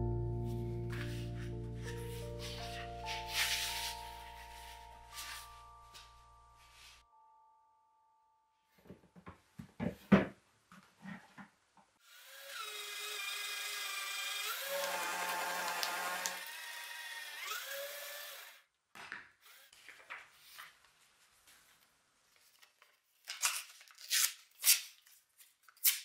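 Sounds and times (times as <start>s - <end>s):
paper rustling: 0.9s - 7.0s, 19.7s - 26.0s
paper shredder motor whining: 12.0s - 18.6s.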